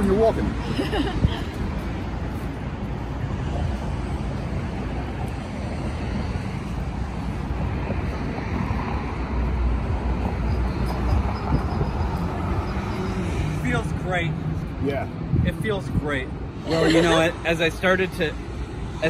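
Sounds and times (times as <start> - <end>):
street traffic: 0.0 - 19.0
wind on microphone: 9.9 - 13.1.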